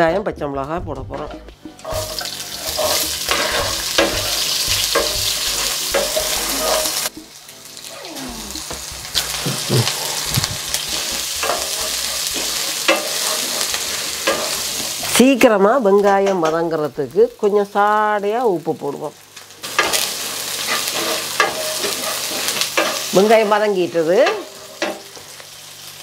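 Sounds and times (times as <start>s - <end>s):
vegetables sizzling in hot oil: 1.8s - 26.0s
wooden spoon scraping a pan: 1.9s - 7.1s, 8.8s - 15.0s.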